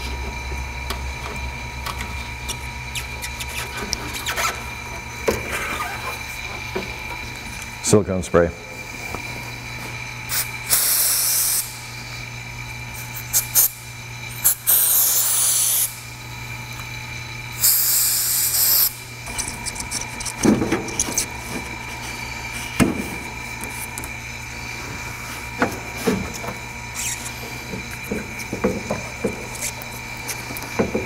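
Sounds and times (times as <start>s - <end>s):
aerosol spray hissing: 10.3s - 11.8s, 14.4s - 16.0s, 17.6s - 19.0s.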